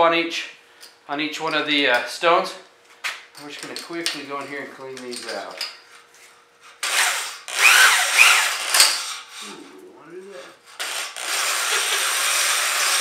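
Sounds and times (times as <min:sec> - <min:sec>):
electric drill honing cylinder: 0:06.8 - 0:09.1, 0:10.8 - 0:13.0.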